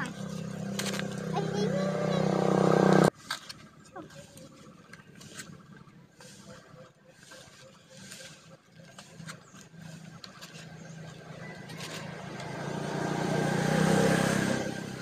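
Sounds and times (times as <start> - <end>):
leaves and foam boxes crinkling: 0.0 - 1.8, 8.1 - 12.5
vehicle engine passing by: 0.0 - 3.1, 9.0 - 15.0.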